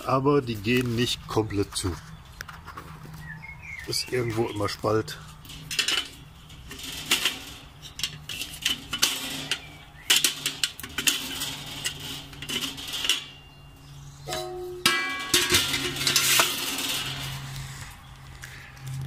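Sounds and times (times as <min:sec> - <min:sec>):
metal vent slider scraping and clicking: 0:05.3 - 0:13.4, 0:15.3 - 0:17.9.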